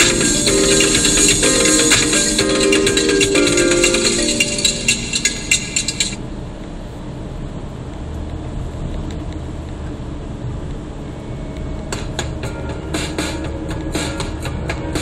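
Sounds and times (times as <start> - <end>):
music with tambourine rattle: 0.0 - 6.2.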